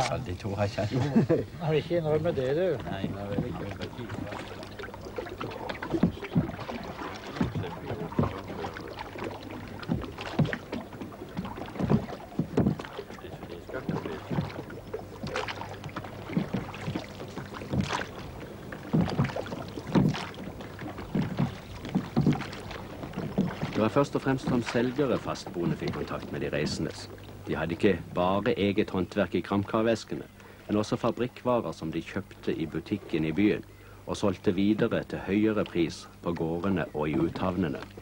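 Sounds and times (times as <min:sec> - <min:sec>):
low steady hum: 0:00.0 - 0:38.0
oar blades splashing: 0:02.0 - 0:28.8, 0:34.7 - 0:38.0
oars knocking in oarlocks: 0:02.8 - 0:27.6.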